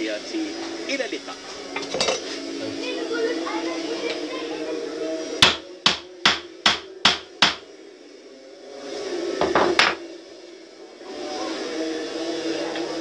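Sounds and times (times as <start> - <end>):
hammer striking wood: 5.4 - 7.7, 9.4 - 10.0.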